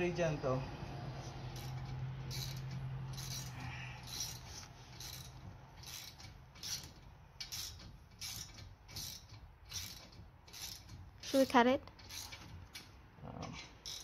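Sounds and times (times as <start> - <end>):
ratchet wrench clicking: 1.5 - 13.0, 13.6 - 14.0.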